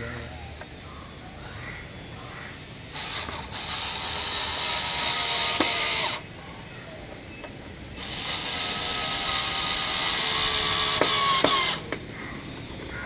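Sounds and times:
tool whine: 2.9s - 6.3s, 8.0s - 12.4s.

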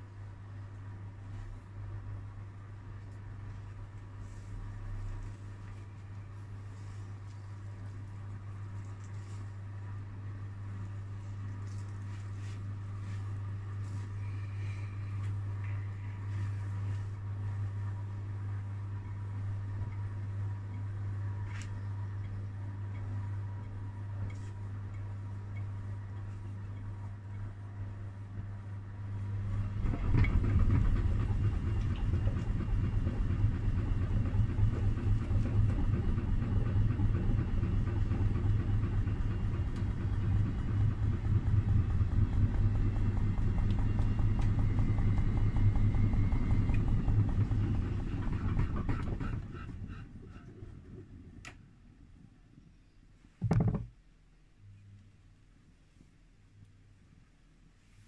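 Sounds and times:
washing machine hum: 0.0s - 58.0s
washing machine drum churning: 29.5s - 50.0s
short knock: 53.4s - 53.9s.

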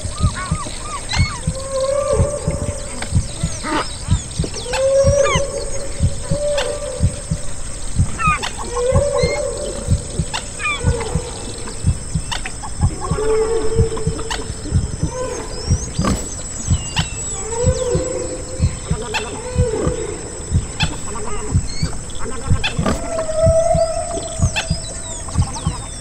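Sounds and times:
heartbeat thumping: 0.0s - 26.0s
whale song: 0.0s - 26.0s.

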